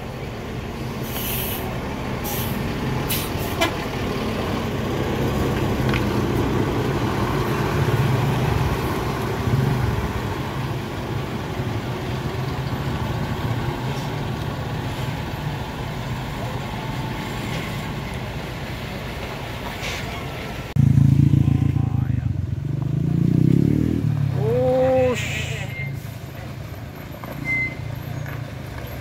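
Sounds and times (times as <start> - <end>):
heavy vehicle engine rumbling: 0.0 - 29.0
air brake hisses: 1.0 - 3.7.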